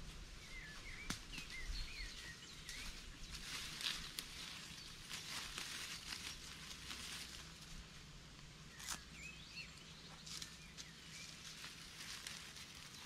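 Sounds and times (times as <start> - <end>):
bird chirps: 0.4 - 3.6
footsteps in dry leaves: 1.4 - 7.9, 10.1 - 13.0.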